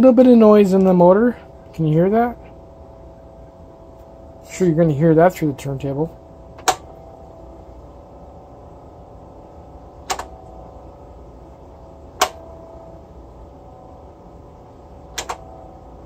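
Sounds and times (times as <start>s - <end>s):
turntable motor humming: 0.0s - 16.0s
sharp clicks: 10.0s - 10.4s, 12.2s - 12.4s, 15.1s - 15.5s.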